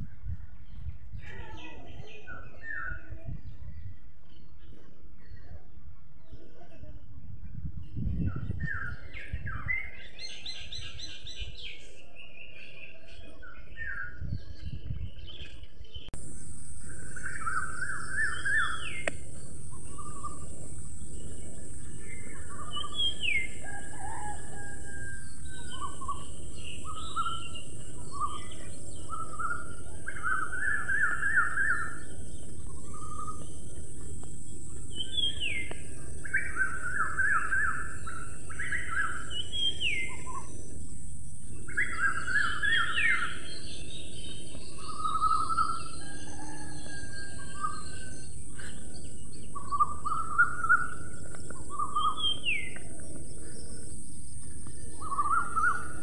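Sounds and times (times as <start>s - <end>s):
small birds chirping: 0.0s - 56.0s
high-pitched hiss: 25.3s - 46.0s.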